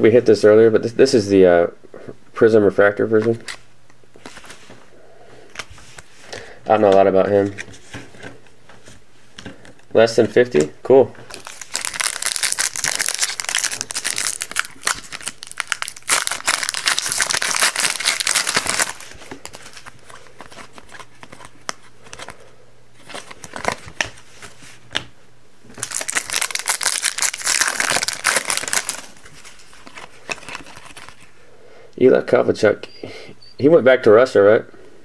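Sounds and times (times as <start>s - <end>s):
wrappers tearing and crinkling: 11.3s - 22.4s, 25.8s - 31.3s.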